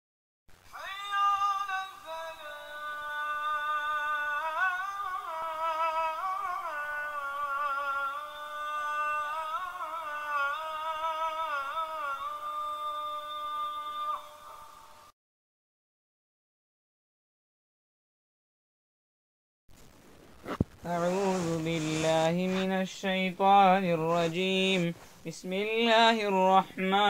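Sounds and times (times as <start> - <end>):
wordless vocal melody: 0.7 - 15.1, 20.8 - 27.0.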